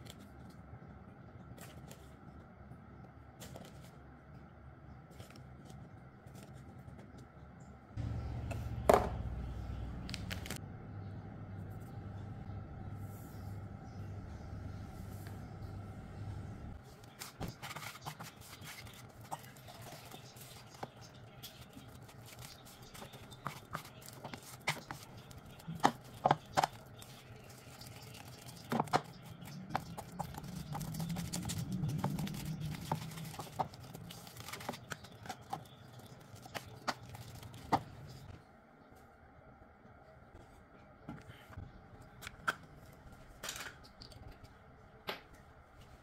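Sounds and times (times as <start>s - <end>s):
spoon scraping butter mixture: 17.1s - 38.3s.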